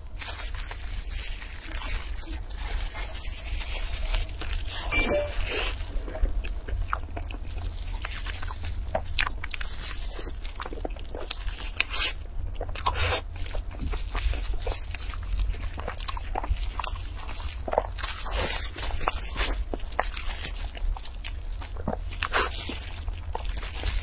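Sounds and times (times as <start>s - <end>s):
plastic wrap crackling: 0.0s - 5.0s
biting and chewing bun: 0.0s - 24.0s.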